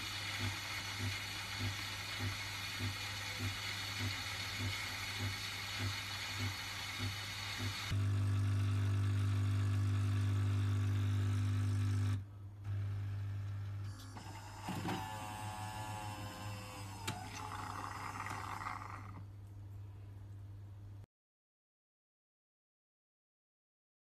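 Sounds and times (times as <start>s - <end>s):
milk frothing hiss: 0.0s - 8.0s, 17.1s - 19.2s
coffee machine motor humming: 0.0s - 19.2s
mechanical whirring: 14.1s - 19.2s.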